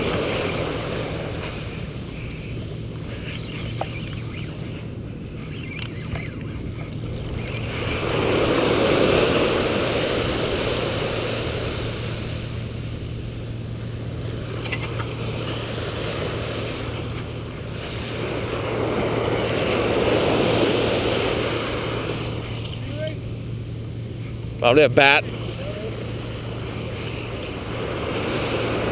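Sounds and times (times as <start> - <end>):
surf washing up beach: 7.8 - 12.6, 17.8 - 23.3.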